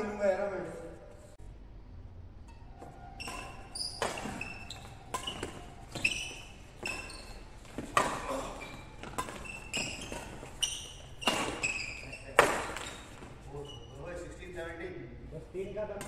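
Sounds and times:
court shoes squeaking: 2.4 - 14.5
rackets hitting shuttlecock: 2.5 - 13.5.

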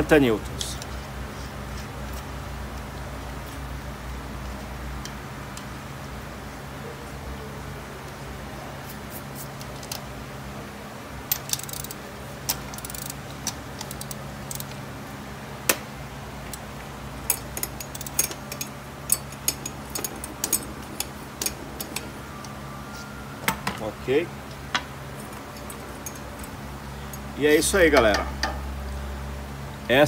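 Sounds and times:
metal tool clicks and clinks: 17.2 - 22.2, 24.7 - 28.6.

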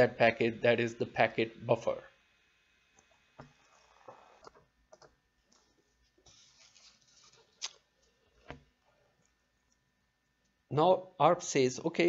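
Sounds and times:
soft rustle: 5.5 - 9.1.

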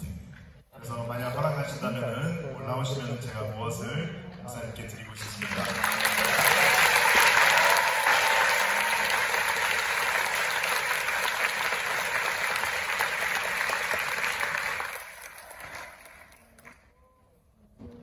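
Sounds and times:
large audience applauding: 5.2 - 16.9.

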